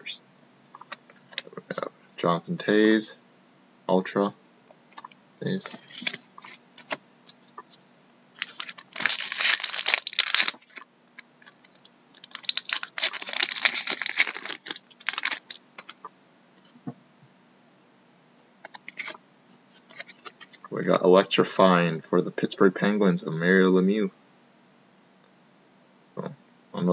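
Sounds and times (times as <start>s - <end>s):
foil pack tearing and crinkling: 8.4s - 10.8s, 11.4s - 16.0s.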